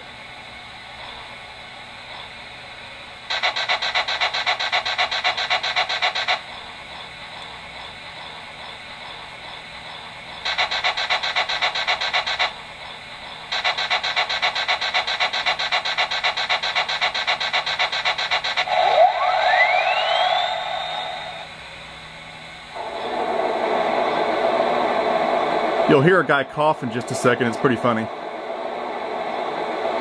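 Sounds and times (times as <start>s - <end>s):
fast rasping pump strokes: 3.3s - 6.5s, 10.4s - 12.6s, 13.5s - 18.8s.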